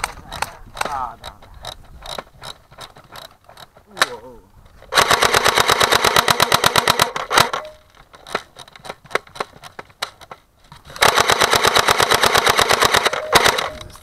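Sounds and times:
airsoft gun firing bursts: 4.9 - 7.7, 10.9 - 14.0.

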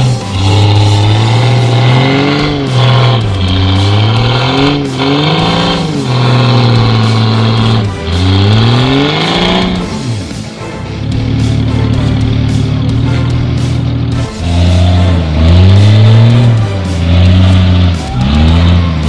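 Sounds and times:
engine revving hard: 0.0 - 19.0.

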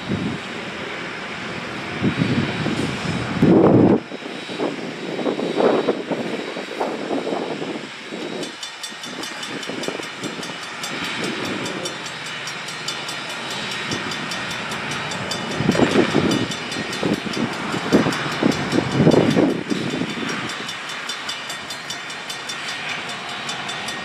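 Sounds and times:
steam locomotive chuffing: 0.0 - 24.0
crossing bell ringing: 5.4 - 24.0.

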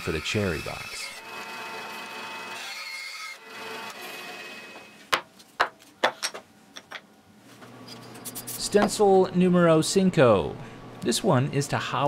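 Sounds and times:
bandsaw cutting wood: 0.0 - 4.9.

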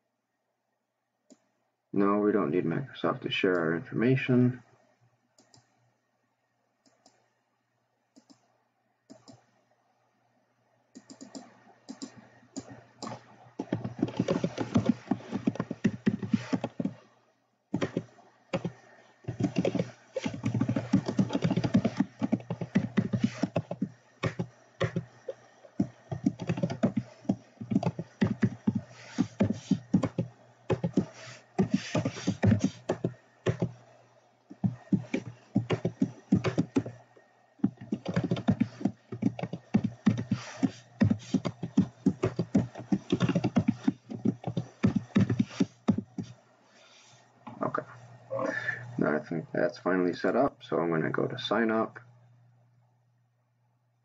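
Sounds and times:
typing on computer keyboard: 11.0 - 17.0, 17.8 - 33.8, 34.6 - 37.0, 37.6 - 46.3.

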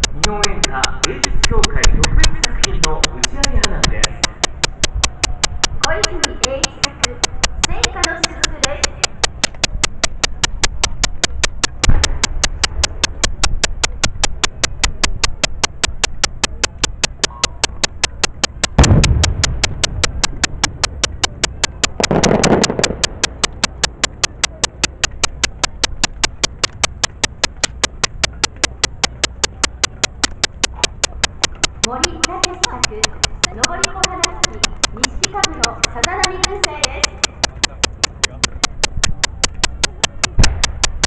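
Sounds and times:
mechanical ticking: 0.0 - 41.0
firework shell bursting: 18.7 - 20.3, 21.3 - 24.3
firework shells booming: 18.8 - 21.0, 21.8 - 24.0, 40.3 - 40.9.

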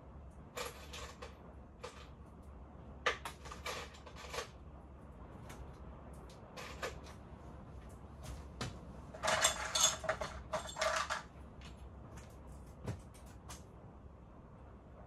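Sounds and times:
tools being rummaged: 0.6 - 2.1, 3.1 - 4.6, 9.1 - 11.3
rattling clatter: 9.1 - 11.3.

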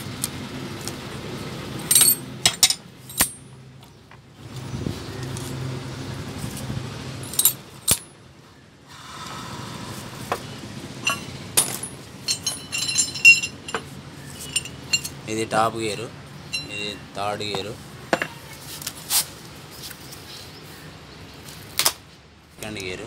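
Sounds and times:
metal gears clinking: 1.8 - 3.5, 7.2 - 8.1, 11.0 - 15.4, 16.5 - 17.0
low steady hum: 7.1 - 18.3.

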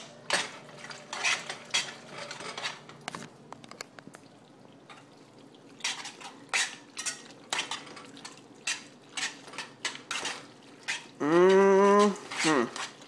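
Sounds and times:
spoon scraping and clinking in pot: 0.3 - 2.9, 5.8 - 11.2.

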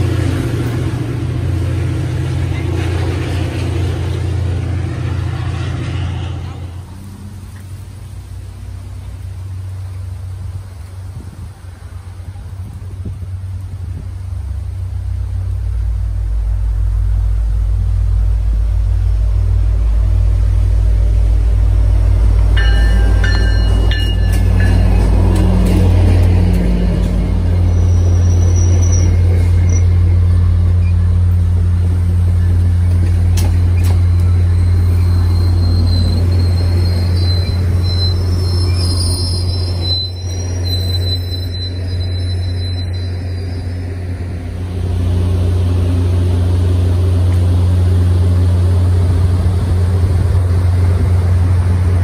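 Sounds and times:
diesel locomotive engine drone: 0.0 - 52.0
train coaches rolling past: 0.0 - 52.0
wheel squeals: 22.6 - 31.2, 32.4 - 44.0.

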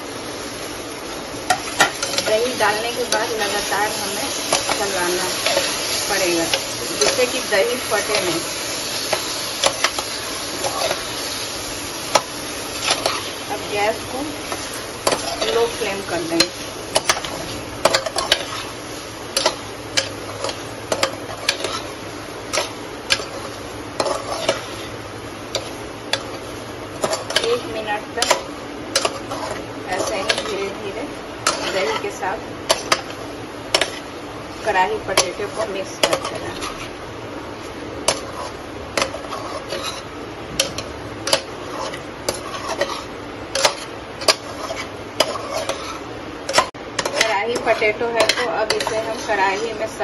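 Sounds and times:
low sizzle: 0.0 - 50.0
spatula stirring and scraping pot: 1.5 - 50.0
spoon clacking against pot: 46.5 - 49.3.

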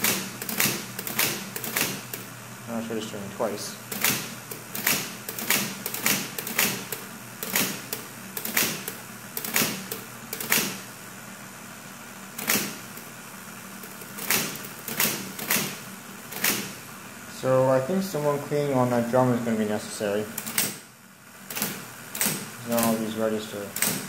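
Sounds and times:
typewriter motor hum: 0.0 - 2.3, 3.9 - 10.9, 12.2 - 16.9, 20.2 - 20.8, 21.4 - 24.0
typewriter keys clacking: 13.8 - 15.7.

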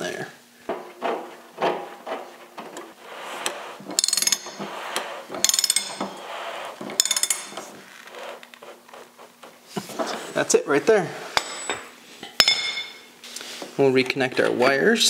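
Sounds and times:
handling and rubbing: 0.0 - 12.2.

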